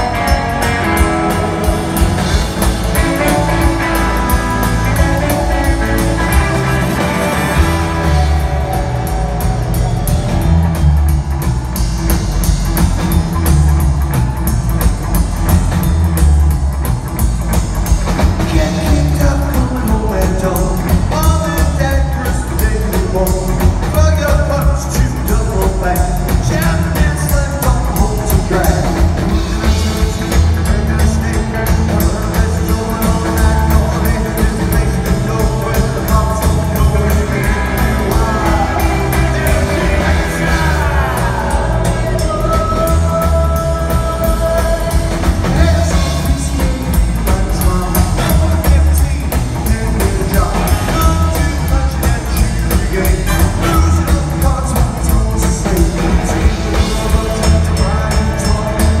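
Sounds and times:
rockabilly band playing live: 0.0 - 59.0
man singing: 18.2 - 59.0.

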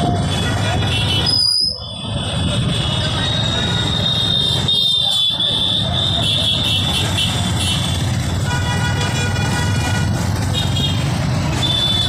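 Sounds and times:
crowd voices: 0.0 - 8.5
vehicle noise: 0.0 - 12.0.

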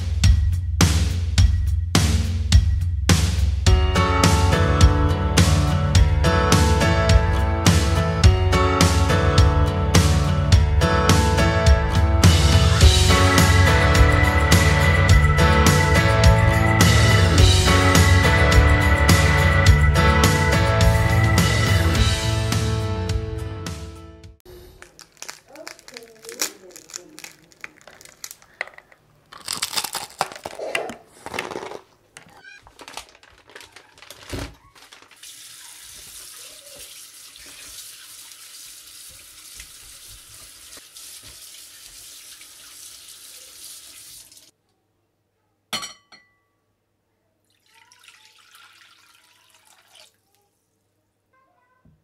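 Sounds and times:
fried chicken crunching: 24.6 - 35.3
water poured into a bowl: 34.9 - 44.5, 47.5 - 50.3.

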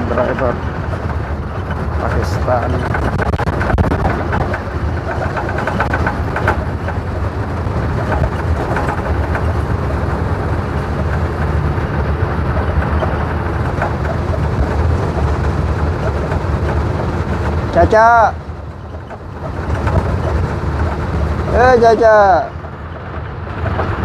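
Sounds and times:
bus engine and road rumble: 0.0 - 24.0
light rattles: 0.0 - 24.0.

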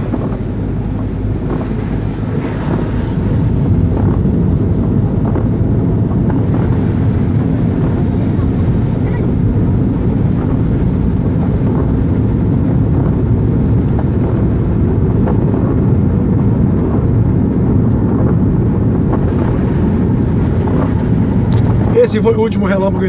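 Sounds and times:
car driving on wet highway: 0.0 - 23.0.

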